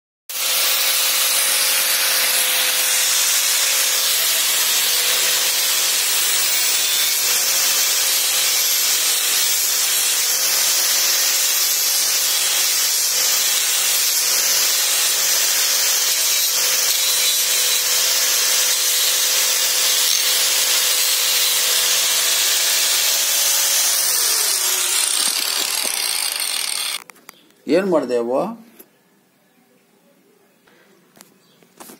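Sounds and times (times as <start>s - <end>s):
angle grinder motor whine: 14.9s - 27.0s
sanding disc hissing on wood: 19.9s - 27.0s.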